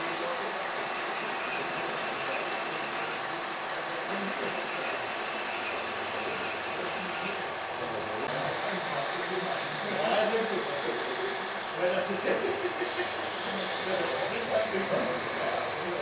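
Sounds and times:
high-pitched motor whine: 0.0 - 16.0.

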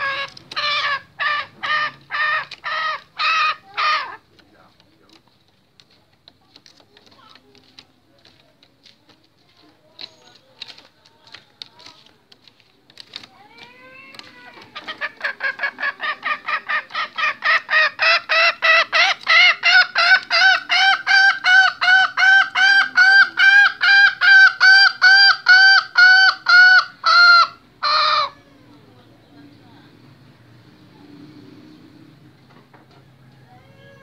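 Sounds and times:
junglefowl clucking calls: 0.0 - 4.4, 14.0 - 28.4
drawn-out junglefowl calls: 0.0 - 5.3, 10.0 - 28.7.

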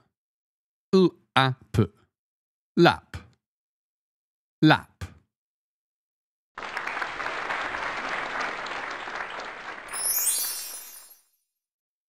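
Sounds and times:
applause: 6.6 - 11.4
high twinkling chime: 9.9 - 11.4.

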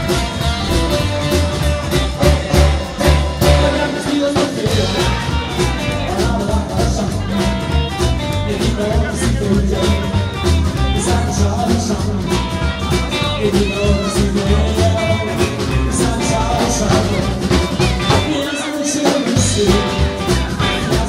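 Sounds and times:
saxophone: 0.0 - 5.5
plucked double bass: 0.0 - 18.4, 19.4 - 21.0
man singing: 0.0 - 21.0
steady beat: 0.0 - 21.0
strummed acoustic guitar: 0.0 - 21.0.

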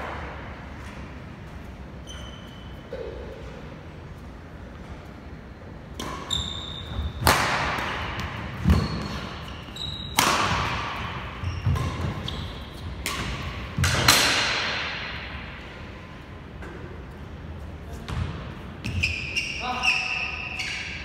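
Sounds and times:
shoe squeaks on court: 2.0 - 3.4, 6.0 - 7.3, 7.9 - 13.0, 18.8 - 21.0
racket striking shuttlecock: 7.1 - 9.4, 10.1 - 15.5.

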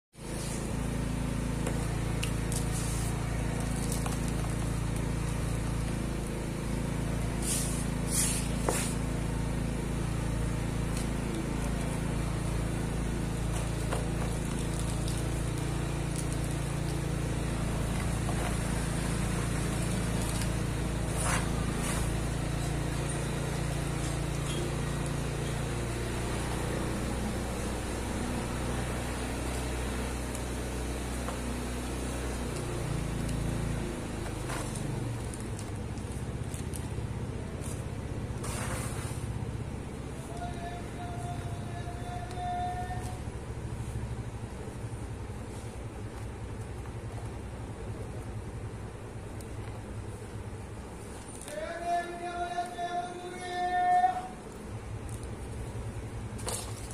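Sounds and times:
dry sand rubbed and trickled: 0.2 - 1.0, 2.4 - 5.7, 7.3 - 9.3, 13.2 - 25.6, 38.4 - 39.4
low machine hum: 0.2 - 56.9.

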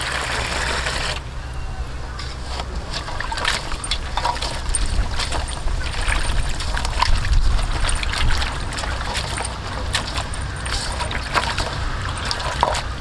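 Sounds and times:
water splashing in metal bowl: 2.8 - 13.0.

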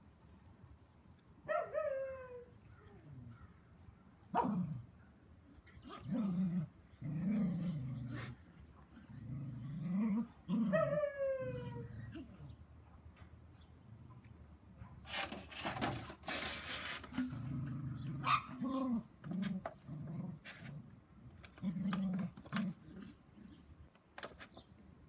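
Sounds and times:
dogs growling: 5.9 - 12.4, 17.2 - 23.7.

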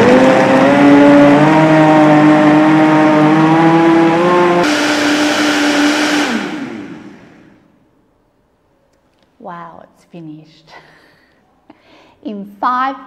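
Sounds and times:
blender motor whining: 0.0 - 7.6.

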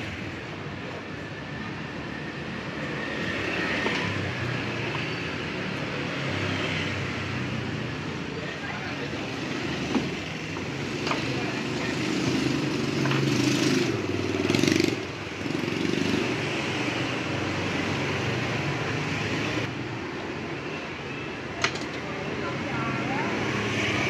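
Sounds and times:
motorbikes passing: 0.0 - 24.0.

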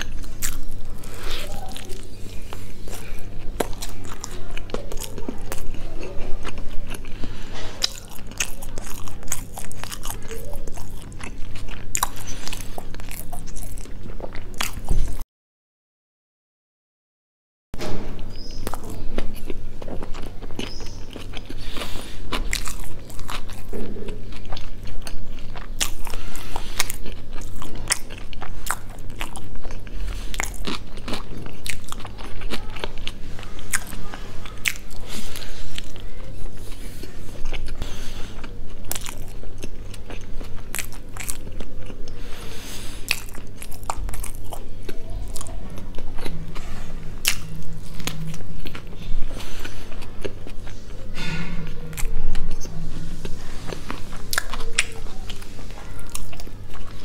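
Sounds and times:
chewing and crunching food: 0.0 - 15.2, 17.8 - 57.0.

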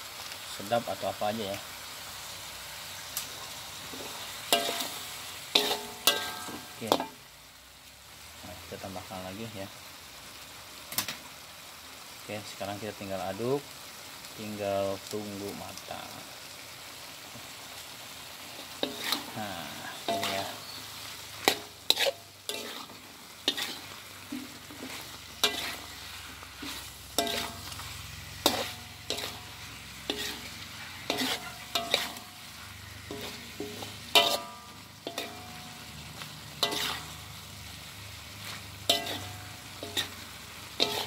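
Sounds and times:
low sizzle: 0.0 - 41.0
metallic ring from pot: 5.6 - 7.1
spatula scraping a metal pot: 18.8 - 19.4, 20.0 - 20.8, 21.4 - 27.8, 28.4 - 32.3, 33.0 - 35.6, 36.6 - 37.2, 38.9 - 40.2, 40.8 - 41.0.

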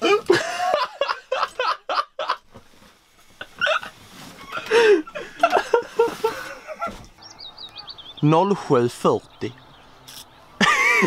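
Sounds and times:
person laughing: 0.0 - 2.4, 3.4 - 7.1, 10.6 - 11.0.

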